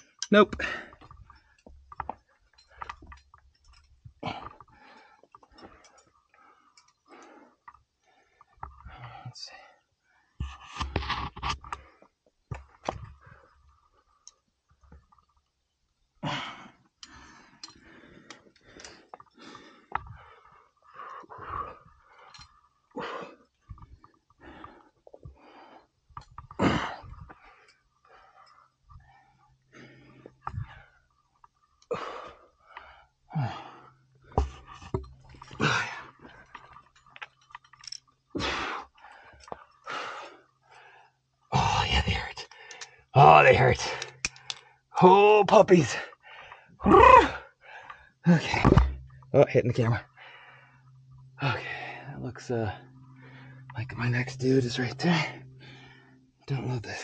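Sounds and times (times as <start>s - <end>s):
person breathing hard: 38.4s - 41.2s, 46.1s - 46.8s, 47.4s - 48.2s, 50.1s - 51.0s.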